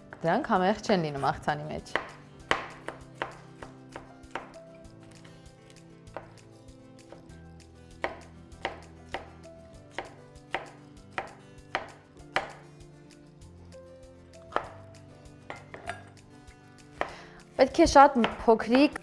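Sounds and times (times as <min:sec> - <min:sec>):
knife chopping on cutting board: 0:01.9 - 0:04.6, 0:05.6 - 0:06.4, 0:08.0 - 0:12.7, 0:14.5 - 0:14.8, 0:16.9 - 0:17.2, 0:18.2 - 0:18.5.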